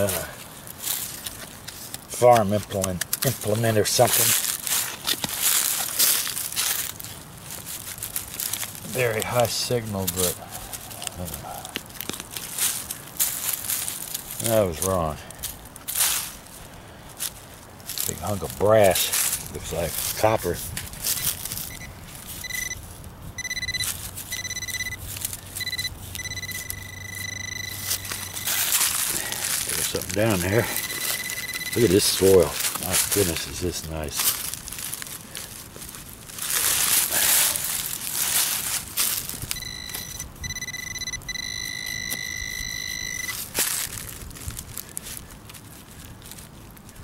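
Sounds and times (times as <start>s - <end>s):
hands digging in loose soil: 0.0s - 22.8s, 23.5s - 40.1s
metal detector tone: 21.1s - 22.8s, 23.4s - 32.4s, 39.4s - 43.6s.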